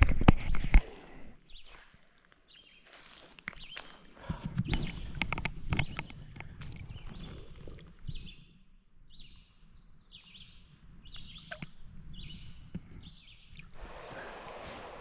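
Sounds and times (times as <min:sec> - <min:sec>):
outdoor noise hiss: 0:13.5 - 0:15.0.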